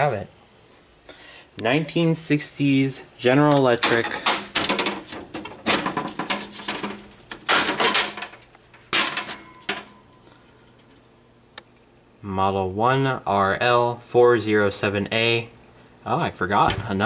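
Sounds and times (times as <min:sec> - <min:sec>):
air conditioner grille clattering: 0:01.6 - 0:11.2, 0:16.4 - 0:17.0.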